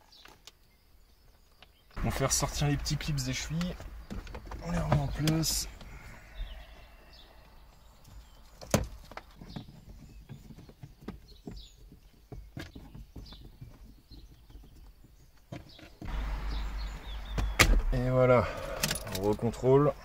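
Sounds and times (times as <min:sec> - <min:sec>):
low rumble: 0:16.0 - 0:20.0.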